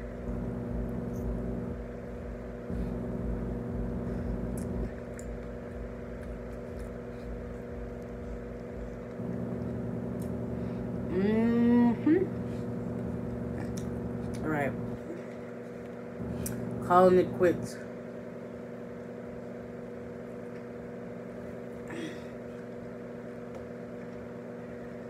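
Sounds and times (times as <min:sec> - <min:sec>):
deep uneven rumble: 0:00.0 - 0:15.1
steady low hum: 0:00.0 - 0:25.0
person humming: 0:11.0 - 0:12.7.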